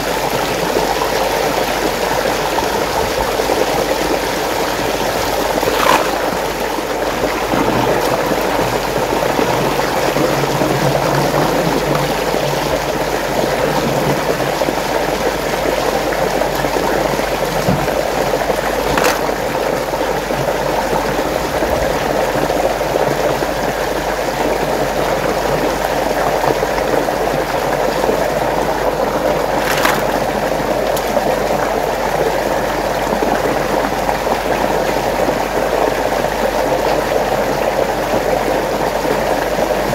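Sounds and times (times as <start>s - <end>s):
water rushing: 0.7s - 13.6s, 28.1s - 33.4s.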